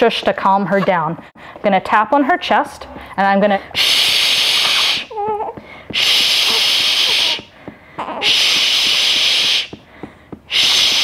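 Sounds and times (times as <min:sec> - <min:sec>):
baby whimpering: 0:04.3 - 0:05.6, 0:06.4 - 0:08.6.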